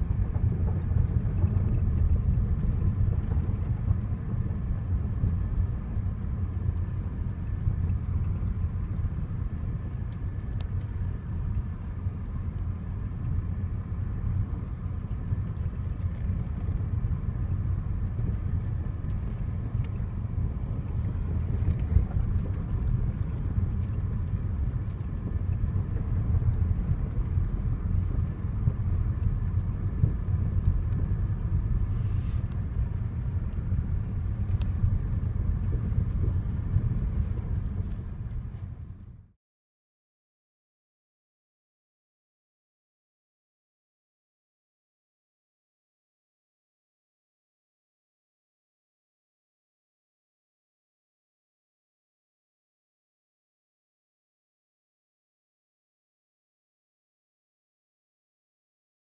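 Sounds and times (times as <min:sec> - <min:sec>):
car rumbling over gravel: 0:00.0 - 0:39.1
small clicks and rattles: 0:00.1 - 0:13.4, 0:18.0 - 0:39.2.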